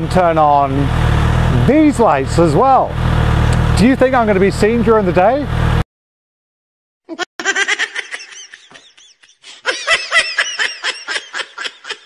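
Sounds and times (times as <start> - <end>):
laughter in short bursts: 7.1 - 12.0.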